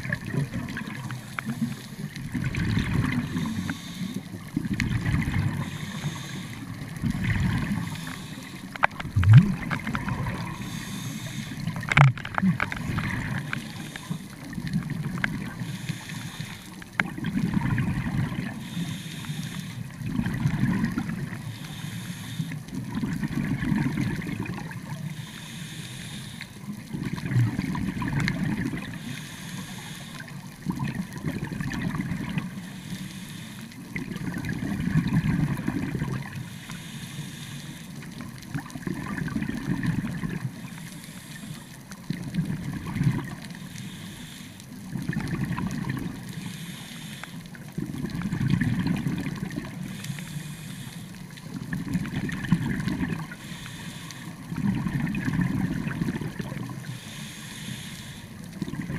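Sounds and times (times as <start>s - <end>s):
exhaled bubbles gurgling: 0.0s - 36.5s, 37.8s - 44.0s, 44.7s - 46.7s, 47.5s - 57.3s, 58.1s - 58.9s
regulator inhale hiss: 0.9s - 2.2s, 3.2s - 4.5s, 5.4s - 9.1s, 10.4s - 12.0s, 13.2s - 14.6s, 15.4s - 16.9s, 18.4s - 20.0s, 21.3s - 22.8s, 25.0s - 26.8s, 28.8s - 30.5s, 32.3s - 34.0s, 36.3s - 38.2s, 40.5s - 41.9s, 43.4s - 44.9s, 46.2s - 47.7s, 49.6s - 51.7s, 53.2s - 54.6s, 56.6s - 58.6s.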